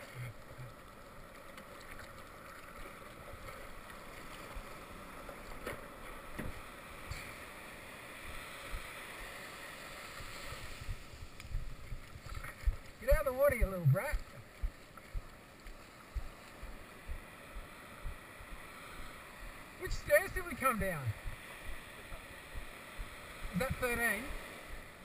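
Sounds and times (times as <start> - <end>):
surf whitewater rushing: 16.1 - 25.0.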